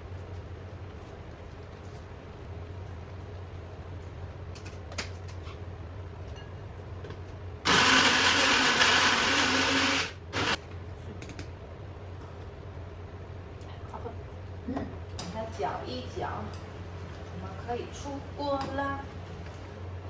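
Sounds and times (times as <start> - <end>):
blender motor whirring: 7.6 - 10.6.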